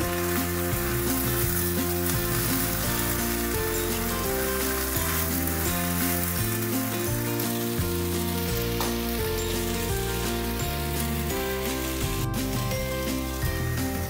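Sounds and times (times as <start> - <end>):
background music: 0.0 - 14.0
food sizzling in a wok: 0.0 - 14.0.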